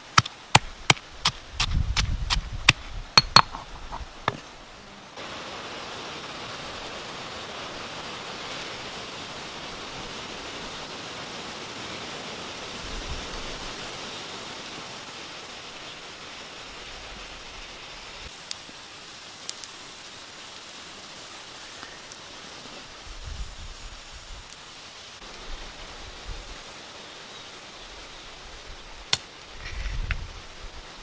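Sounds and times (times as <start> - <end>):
pestle striking stone mortar: 0.1 - 4.4
snails sizzling and bubbling: 13.5 - 25.4.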